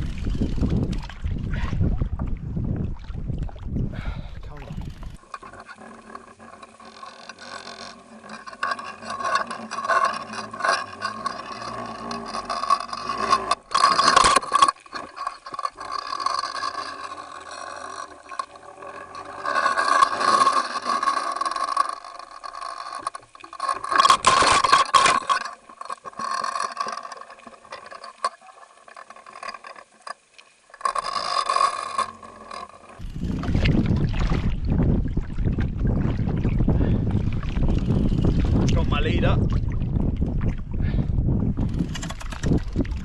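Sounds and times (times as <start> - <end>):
wind buffeting microphone: 0.0 - 5.2, 33.0 - 43.0
muffled rushing water: 33.2 - 41.4.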